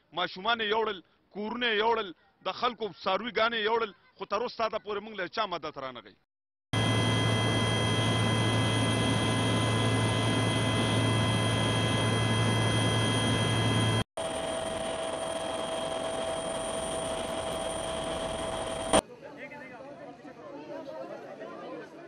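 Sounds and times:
aircraft engine drone with whine: 6.8s - 19.0s.

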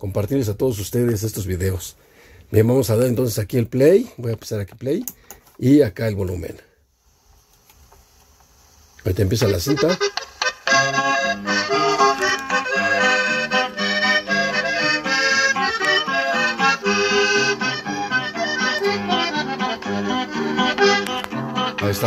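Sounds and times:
accordion music from cassette radio: 9.1s - 22.0s.

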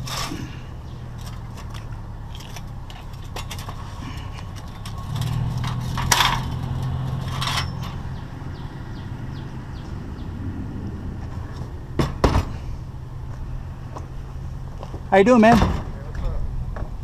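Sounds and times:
metal rails clanking: 0.0s - 8.2s.

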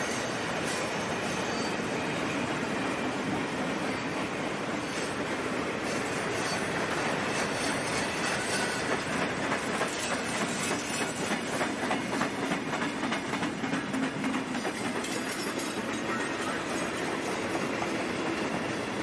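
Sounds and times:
train wheels rattling on rails: 0.0s - 19.0s
clicking over rail joints: 5.0s - 19.0s.

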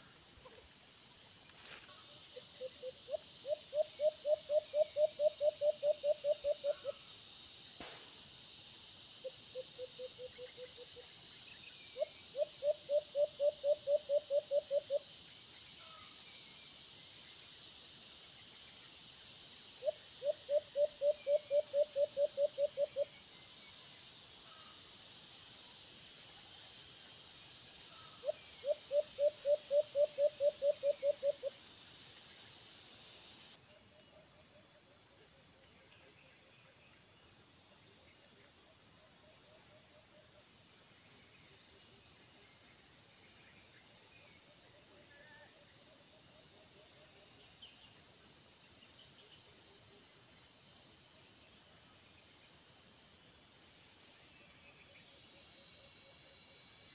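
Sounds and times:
dove hooting: 2.6s - 7.0s, 12.0s - 15.0s, 19.8s - 23.1s, 28.0s - 31.5s.

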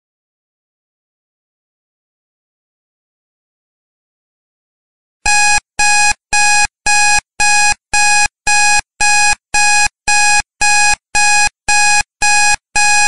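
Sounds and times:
timer alarm beeping: 5.3s - 13.0s.

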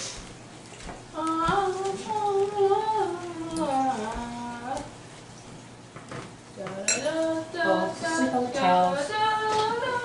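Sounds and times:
person singing wordless tune: 1.1s - 4.9s, 6.8s - 10.0s.

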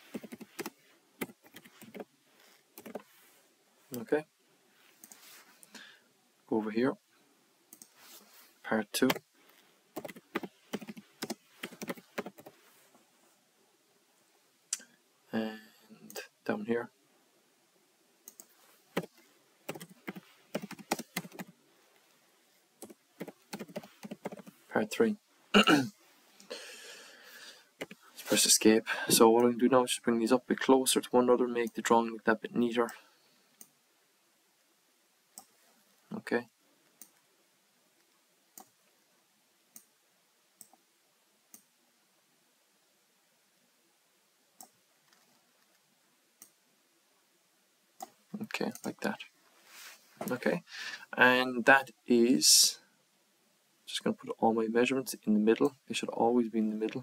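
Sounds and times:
computer mouse clicks: 0.1s - 2.0s, 2.8s - 3.0s, 18.2s - 21.5s
typing on computer keyboard: 0.1s - 2.0s, 10.0s - 12.5s, 19.7s - 21.5s, 22.8s - 24.5s.

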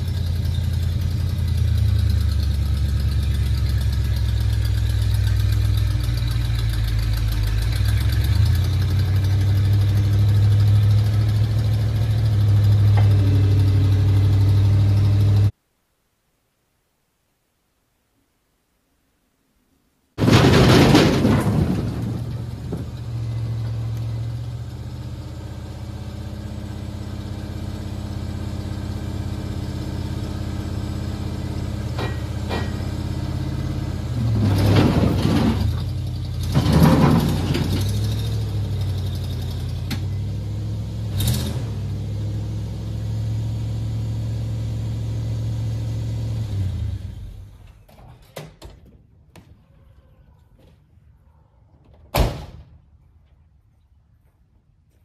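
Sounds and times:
truck engine running: 0.0s - 15.5s, 20.2s - 47.6s
logs clattering: 20.2s - 24.1s.

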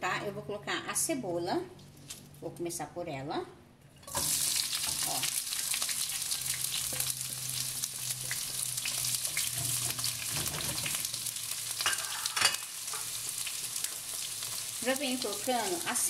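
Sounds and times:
onion sizzling in hot oil: 4.1s - 16.0s
spatula scraping wok: 5.8s - 14.9s.

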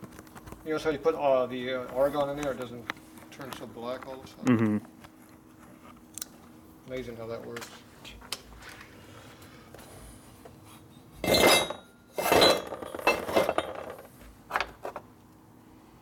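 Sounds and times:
metal clanking on steel bench: 11.2s - 14.0s.

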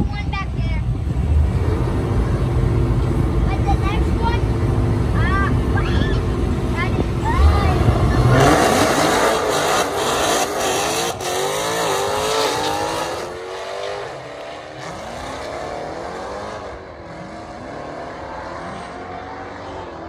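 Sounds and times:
race car engine accelerating: 6.2s - 20.0s.

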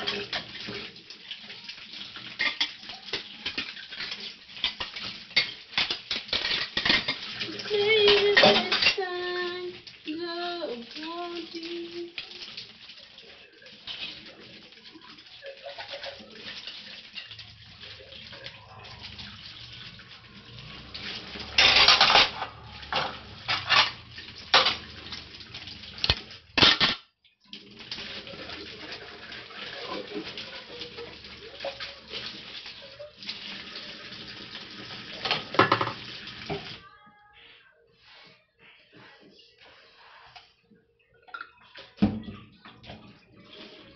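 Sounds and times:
water splashing: 0.0s - 26.8s
crockery clattering: 8.0s - 9.0s, 21.4s - 24.9s
tap running into a steel sink: 35.2s - 36.7s.

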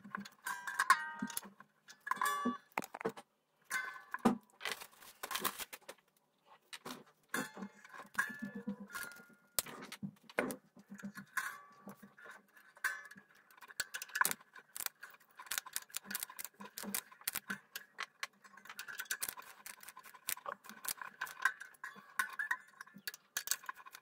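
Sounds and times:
clicks and taps of handling: 2.1s - 3.3s.

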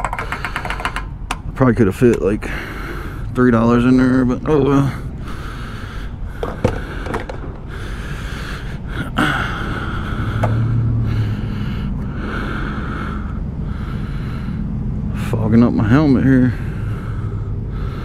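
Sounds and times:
sharp clicks: 0.0s - 2.3s
low steady rumble: 0.0s - 18.0s
heavy breathing in a helmet: 2.4s - 3.4s, 4.7s - 15.3s, 16.3s - 18.0s.

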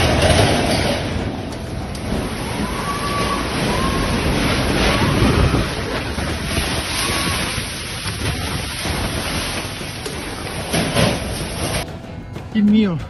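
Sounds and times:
wind roaring: 0.0s - 11.8s
wind buffeting microphone: 1.6s - 11.8s.

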